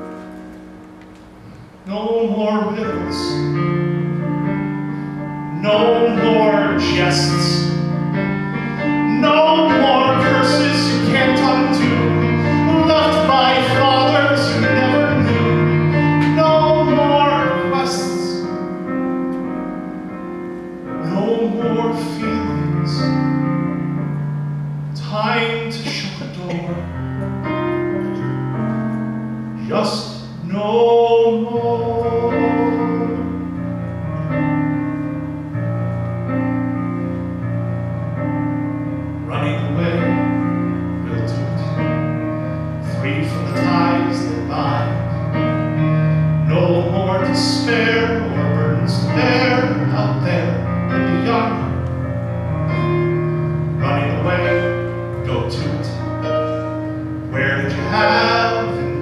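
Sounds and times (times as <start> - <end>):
sustained piano chords: 0.0 - 59.0
man singing a slow ballad: 1.8 - 3.6, 5.5 - 8.1, 8.8 - 18.6, 21.0 - 23.4, 25.0 - 26.9, 29.6 - 33.7, 39.2 - 42.2, 42.8 - 51.8, 53.8 - 56.5, 57.3 - 59.0.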